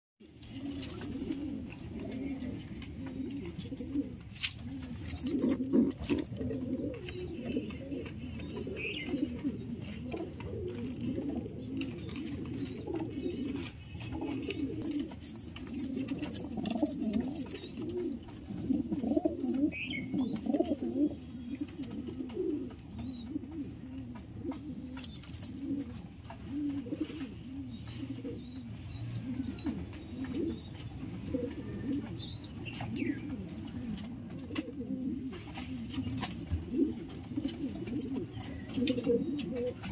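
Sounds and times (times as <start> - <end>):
pigeons cooing: 0.2 - 39.9.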